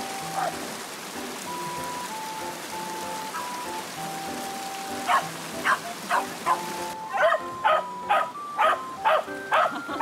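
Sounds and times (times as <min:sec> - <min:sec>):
rushing river water: 0:00.0 - 0:10.0
dog barking: 0:05.1 - 0:09.7.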